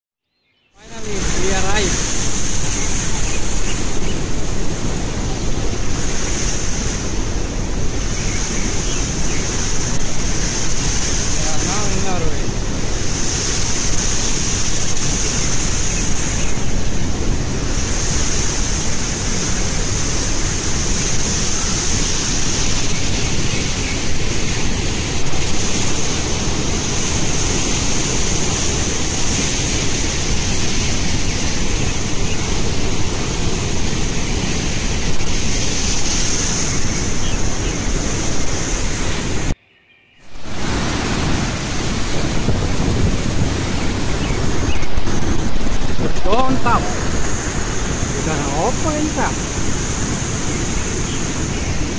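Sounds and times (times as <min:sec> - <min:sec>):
waterfall rushing over rocks: 0:00.8 - 0:39.6, 0:40.3 - 0:51.9
wind on microphone: 0:00.8 - 0:39.6, 0:40.3 - 0:51.9.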